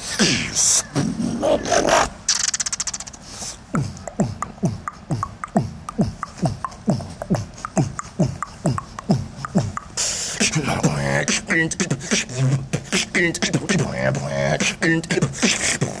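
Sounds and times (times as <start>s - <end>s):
beatboxing hissing burst: 0.0s - 16.0s
beatboxing vocal pitch sweeps: 0.0s - 16.0s
wobbling bass tone: 3.8s - 9.9s.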